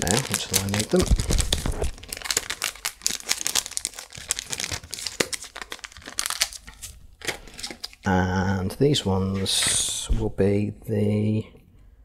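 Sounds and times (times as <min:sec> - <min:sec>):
plastic wrap crinkling: 0:00.0 - 0:08.1.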